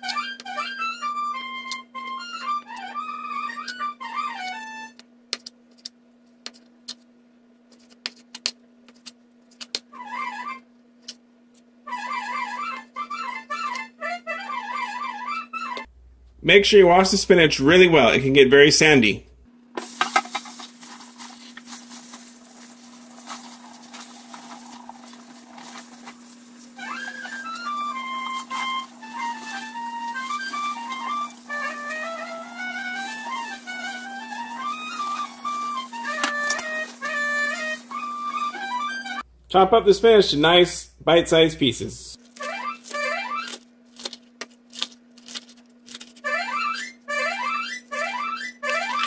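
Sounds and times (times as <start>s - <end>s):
wind instrument background music: 0.0s - 5.0s, 10.0s - 10.6s, 11.9s - 15.9s, 26.7s - 39.3s, 46.2s - 49.0s
wet leaves rustling: 19.8s - 38.5s.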